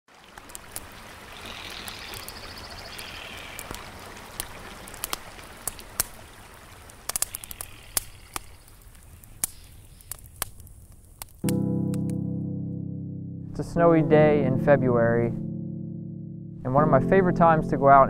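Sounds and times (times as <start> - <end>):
creek water over rocks: 0.1 - 9.6
campfire crackling and popping: 0.1 - 12.2.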